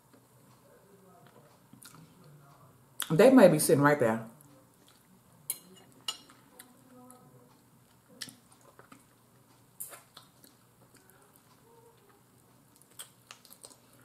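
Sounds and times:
person chewing food: 1.2 - 2.4, 4.4 - 14.0.

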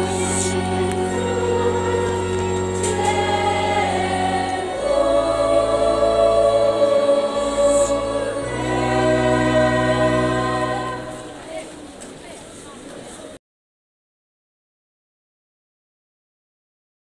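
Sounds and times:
keyboard accompaniment: 0.0 - 11.6
church choir singing: 0.0 - 11.7.

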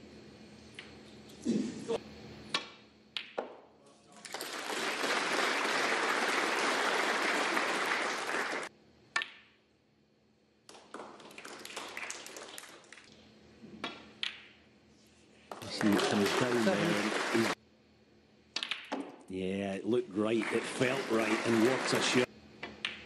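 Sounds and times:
audience applause: 4.2 - 8.7, 10.8 - 13.0, 15.5 - 17.6, 20.2 - 22.3
crowd murmur: 15.9 - 17.6, 20.4 - 22.3.

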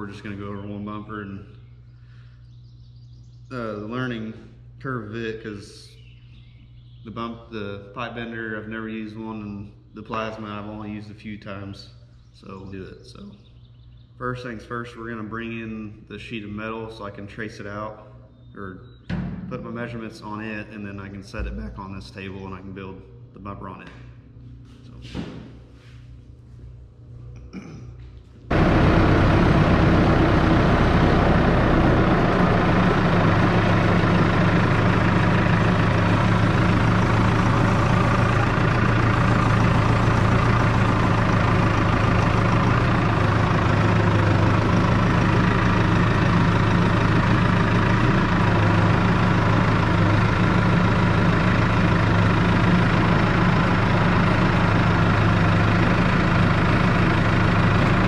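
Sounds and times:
tractor engine running: 0.0 - 1.3, 28.4 - 58.0.

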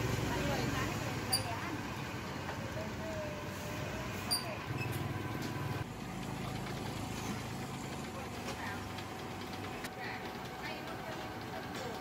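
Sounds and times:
motor scooters passing: 0.0 - 7.8
traffic din: 0.0 - 9.8.

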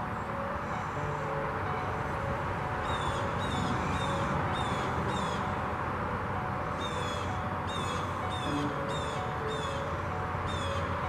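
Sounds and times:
river rushing: 0.0 - 11.0
bird calling: 6.8 - 10.9.

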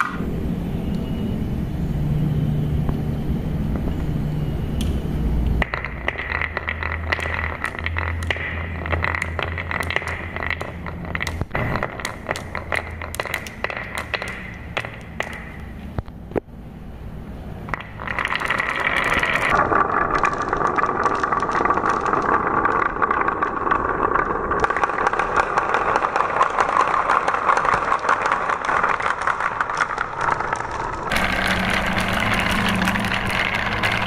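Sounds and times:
marbles rolling in wooden channels: 3.6 - 16.1, 17.4 - 34.0.

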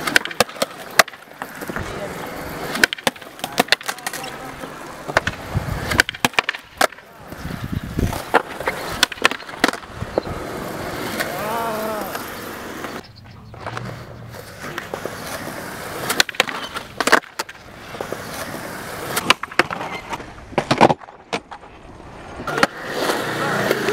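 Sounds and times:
skateboard clacks on ledge: 0.0 - 1.9, 2.7 - 4.4
skateboard wheels rolling on concrete: 0.0 - 23.9.

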